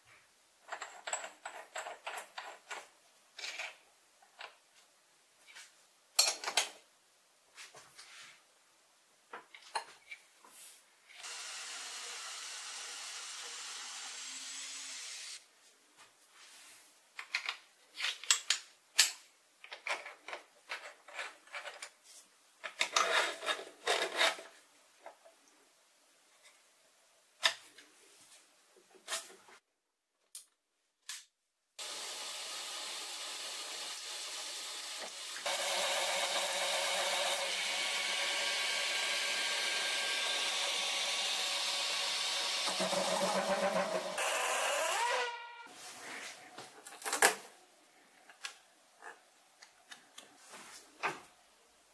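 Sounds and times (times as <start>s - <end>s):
shop vacuum running: 34.9s - 45.6s
lathe running: 35.5s - 45.2s.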